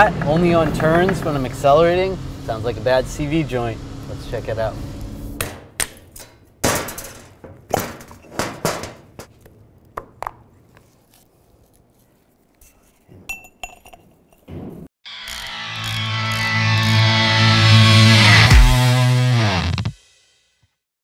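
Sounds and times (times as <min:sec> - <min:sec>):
steel parts clinking: 0:05.9 - 0:09.0, 0:12.6 - 0:14.5.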